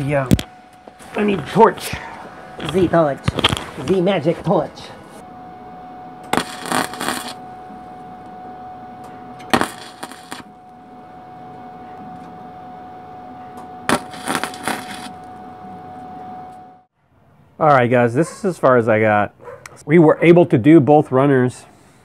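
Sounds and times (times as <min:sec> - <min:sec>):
faint steady hum: 0:00.0 - 0:16.9
welding arc crackle: 0:02.6 - 0:04.0, 0:06.3 - 0:07.4, 0:09.4 - 0:10.6, 0:13.9 - 0:15.2.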